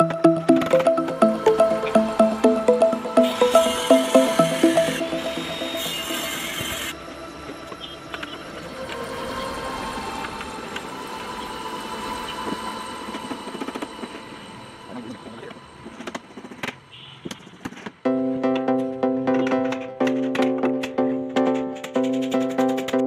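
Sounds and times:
table saw motor running: 3.3s - 7.0s.

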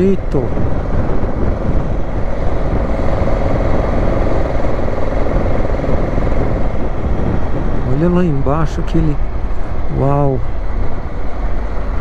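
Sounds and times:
motorcycle engine running: 0.0s - 7.8s
wind rush on microphone: 0.0s - 12.0s.

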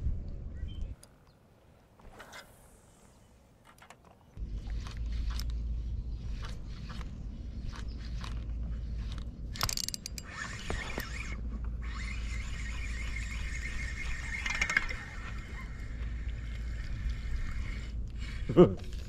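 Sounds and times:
fishing reel whirring: 7.7s - 19.0s.

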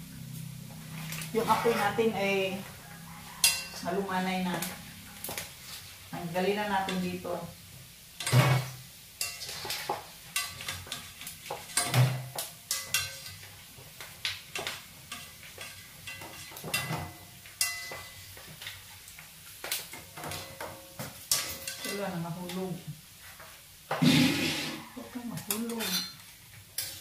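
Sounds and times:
frying oil sizzling: 0.0s - 27.0s
metal ladle scraping a wok: 1.0s - 4.0s, 8.2s - 13.5s, 21.3s - 22.6s, 23.3s - 26.2s, 26.8s - 27.0s.

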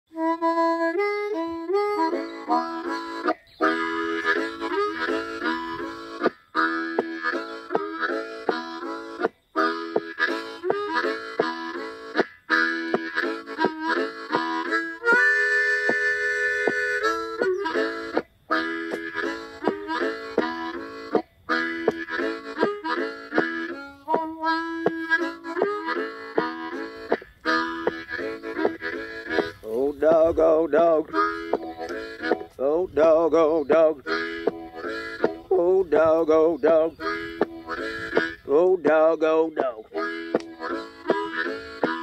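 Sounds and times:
blues harmonica playing: 0.1s - 42.0s.

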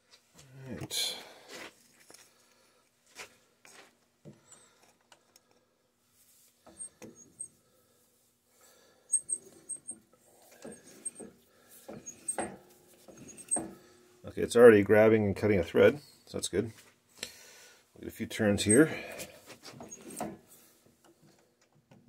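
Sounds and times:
high squeaks of die cutting: 9.1s - 10.0s, 13.1s - 13.8s
metal clicks and knocks: 10.6s - 13.8s.

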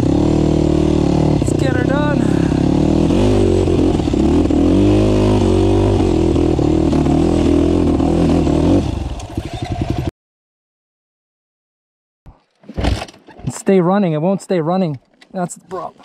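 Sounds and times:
dirt bike engine sputtering: 0.0s - 10.1s.

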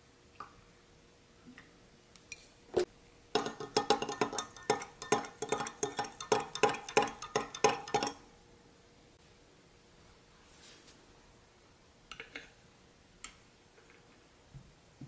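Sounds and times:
spoon clinking against glass: 3.4s - 8.2s.

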